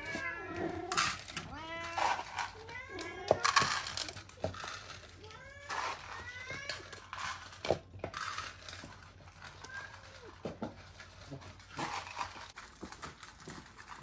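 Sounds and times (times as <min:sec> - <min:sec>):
cats meowing: 0:00.0 - 0:04.6.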